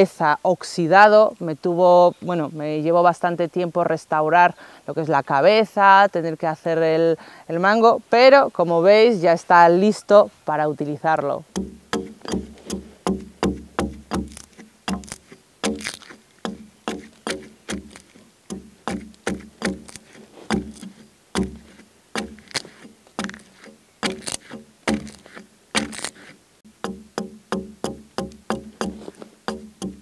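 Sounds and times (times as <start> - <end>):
axe chopping into log: 11.6 - 30.0.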